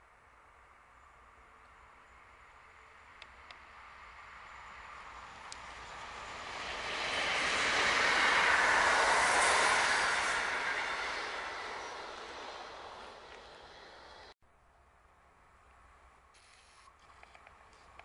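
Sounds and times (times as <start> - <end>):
electric train passing: 0.5 - 14.4.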